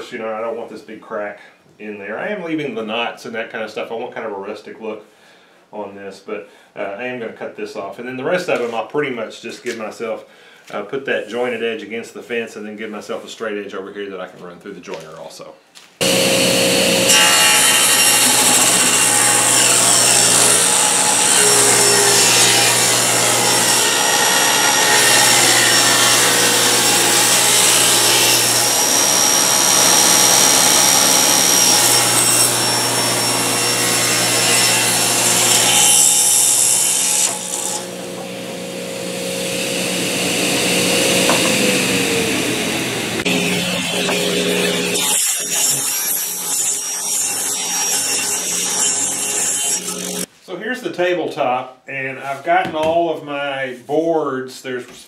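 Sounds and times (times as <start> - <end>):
saw blade cutting wood: 16.0 - 50.3
table saw motor hum: 16.0 - 50.3.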